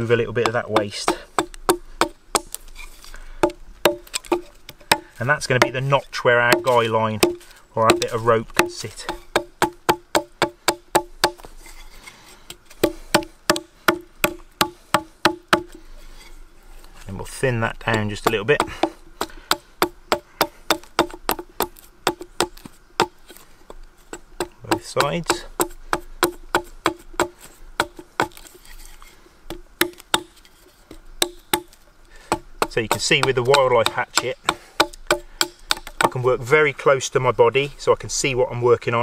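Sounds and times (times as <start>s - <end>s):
hatchet chopping wood: 0.2s - 2.6s, 3.4s - 11.5s, 12.7s - 15.8s, 17.8s - 23.3s, 24.1s - 28.5s, 29.5s - 30.4s, 31.2s - 36.2s.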